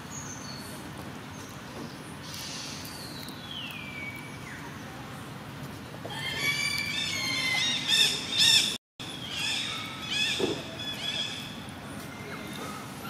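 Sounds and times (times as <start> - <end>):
baby monkey screaming: 6.1 - 11.4.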